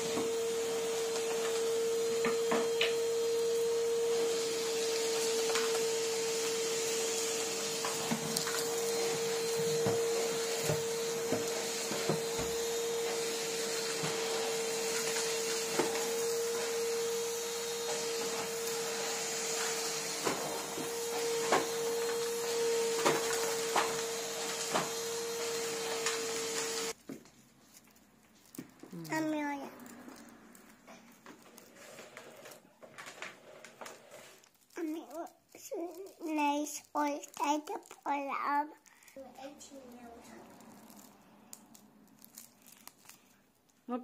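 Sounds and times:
vacuum cleaner running: 0.0 - 27.0, 28.9 - 34.4.

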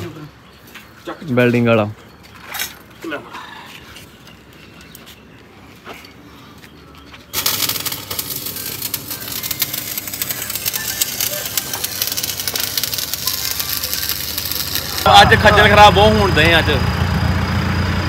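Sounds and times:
arc welding crackling: 7.3 - 16.5.

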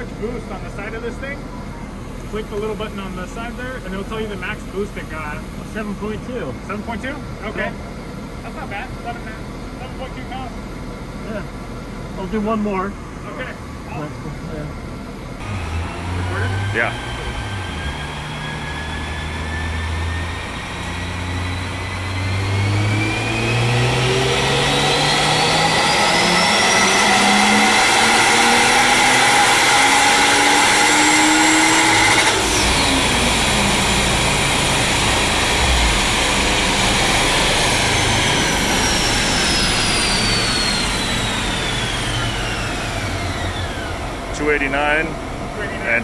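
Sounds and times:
car engine full throttle: 0.0 - 46.0
turbo whine: 0.0 - 46.0.

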